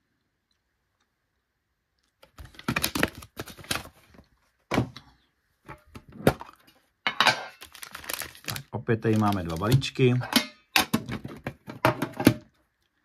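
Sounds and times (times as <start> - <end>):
metal tin knocking and scraping: 9.7 - 12.5.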